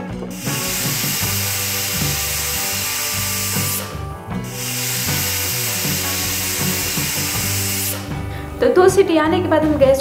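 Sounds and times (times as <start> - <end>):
background music with bass: 0.0 - 10.0
pressure cooker steam whistling: 0.4 - 3.9, 4.5 - 8.1.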